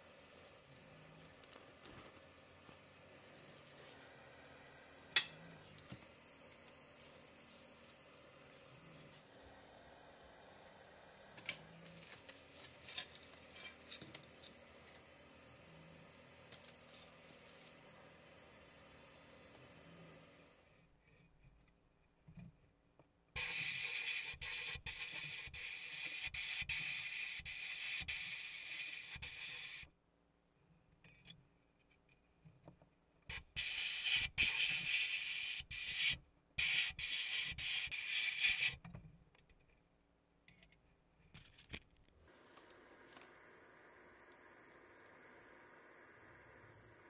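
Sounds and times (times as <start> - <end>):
sandblasting gun hissing: 0.0 - 20.4, 23.4 - 29.9, 33.3 - 38.8.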